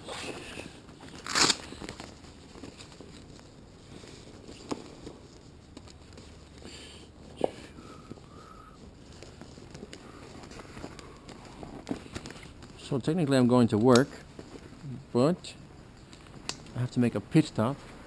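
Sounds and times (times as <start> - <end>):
camera handling rustling: 0.2 - 6.7, 8.8 - 12.8.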